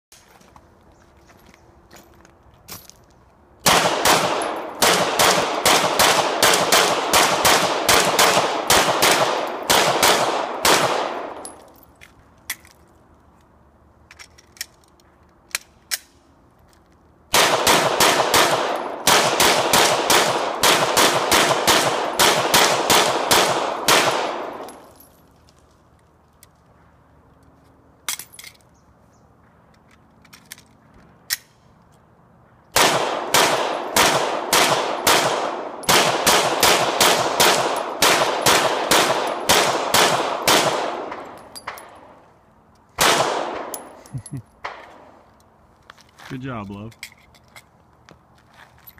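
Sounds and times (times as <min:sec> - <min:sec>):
pistol shots: 0:03.6 - 0:11.4, 0:17.3 - 0:24.8, 0:32.8 - 0:42.1, 0:43.0 - 0:43.9.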